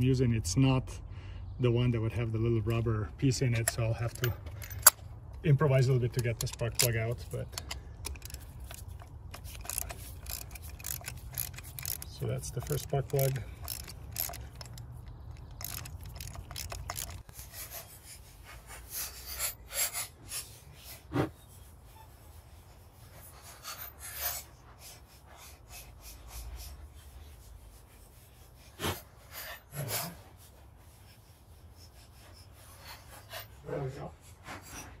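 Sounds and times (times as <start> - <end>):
metal scrapes and clinks: 3.4 - 18.1
ratchet clicking: 6.2 - 17.3.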